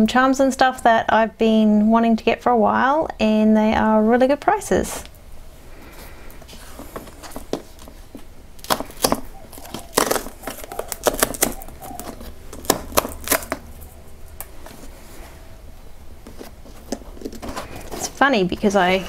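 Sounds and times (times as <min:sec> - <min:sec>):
fingers scraping and tapping cardboard: 0:06.7 - 0:13.7, 0:16.2 - 0:18.2.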